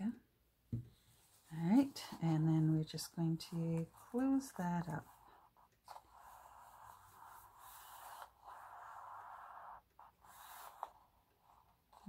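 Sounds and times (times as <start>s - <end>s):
soft taps: 0.7s - 1.0s.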